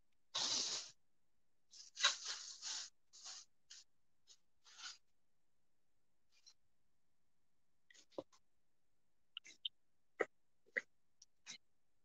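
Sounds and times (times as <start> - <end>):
scraping and rubbing on microphone: 1.8 - 3.9.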